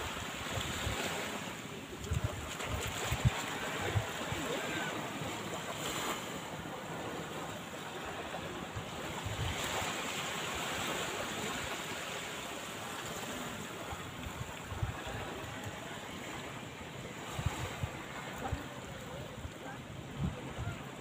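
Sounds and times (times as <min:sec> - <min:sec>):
small waves washing on sand: 0:00.0 - 0:21.0
wind buffeting microphone: 0:02.0 - 0:05.0, 0:08.6 - 0:10.0, 0:13.8 - 0:15.9, 0:17.0 - 0:21.0.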